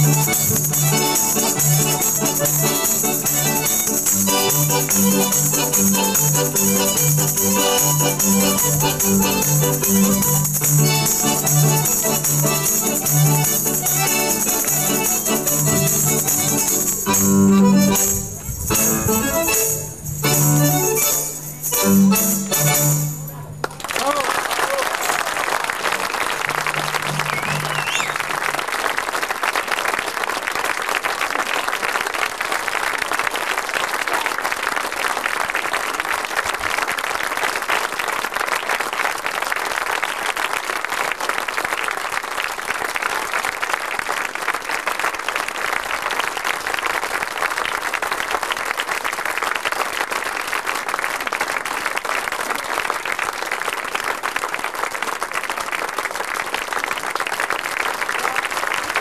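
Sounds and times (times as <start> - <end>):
audience applauding: 23.6 - 59.0.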